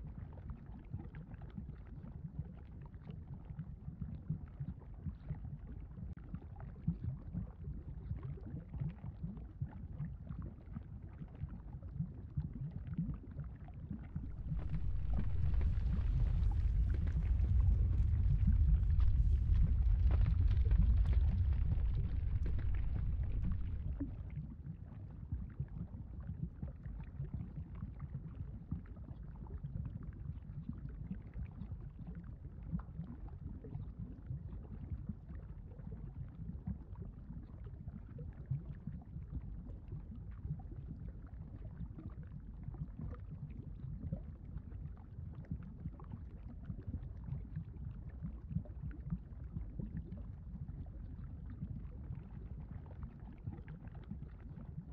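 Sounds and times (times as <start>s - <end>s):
lava rumbling with crackling: 13.3s - 54.9s.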